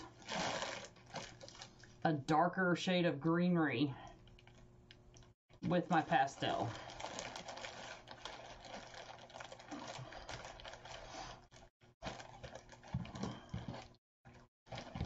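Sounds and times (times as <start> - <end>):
artificial flower stems rustling: 0.0 - 2.0, 5.6 - 14.0.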